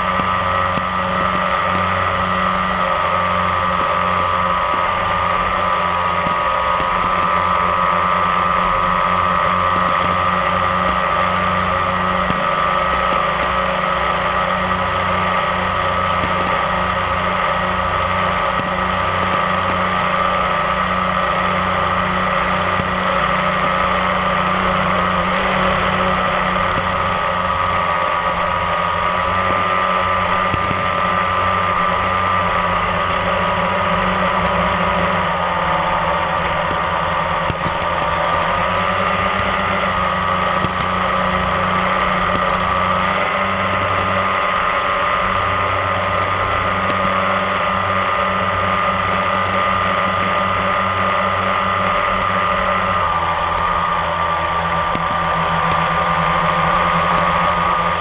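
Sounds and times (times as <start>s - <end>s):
drone motors whining: 0.0s - 58.0s.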